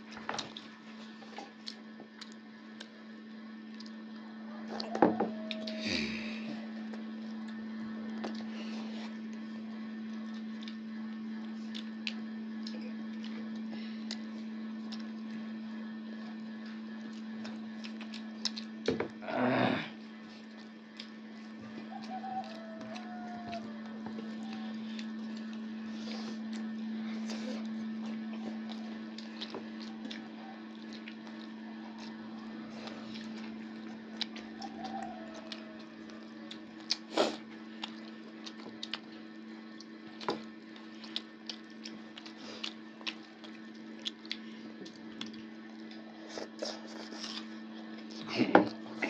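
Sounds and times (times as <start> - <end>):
chewing: 0.0 - 3.1, 3.7 - 18.9, 20.0 - 49.0
steady low hum: 0.0 - 49.0.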